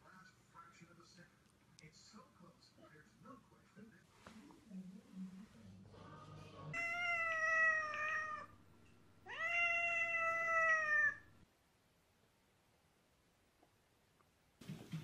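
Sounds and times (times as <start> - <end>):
cat meowing: 6.8 - 8.6, 9.2 - 11.4.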